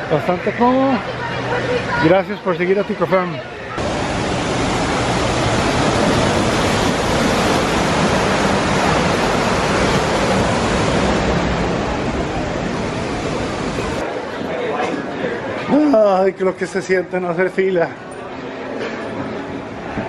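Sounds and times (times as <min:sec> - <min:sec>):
waterfall rushing: 0:00.0 - 0:14.1.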